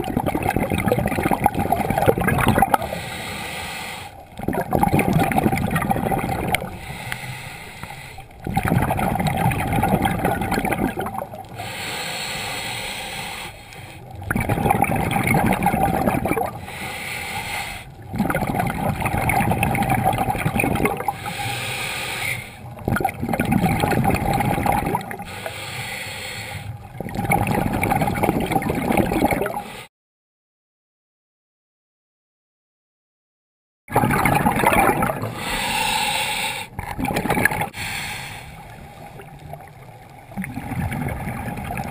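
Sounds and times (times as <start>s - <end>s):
bubbling underwater exhalation: 0.0s - 3.1s, 4.2s - 7.0s, 8.3s - 11.9s, 14.1s - 16.8s, 17.9s - 21.3s, 22.6s - 25.3s, 26.8s - 29.7s, 33.9s - 41.9s
regulator hiss: 37.8s - 38.7s.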